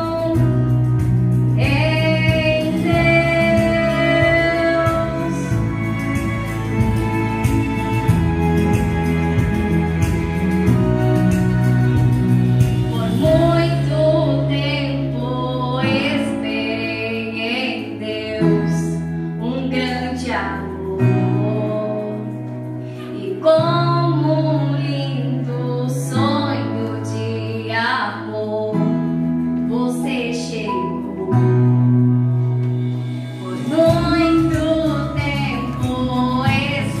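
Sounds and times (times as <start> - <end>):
woman singing a hymn: 0.0 - 0.8, 1.5 - 5.6, 12.9 - 29.0, 29.6 - 31.8, 33.6 - 37.0
instrumental accompaniment: 0.0 - 37.0.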